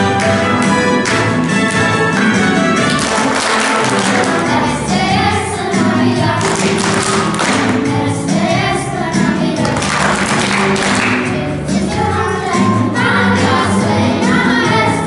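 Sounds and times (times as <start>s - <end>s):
instrumental accompaniment: 0.0s - 15.0s
group of voices singing: 2.9s - 15.0s.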